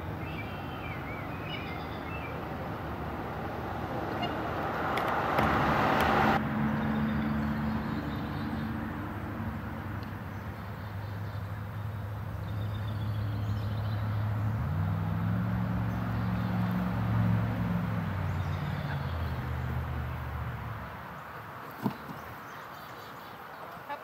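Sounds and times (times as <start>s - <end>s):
faint bird chirps: 0.2s - 2.4s.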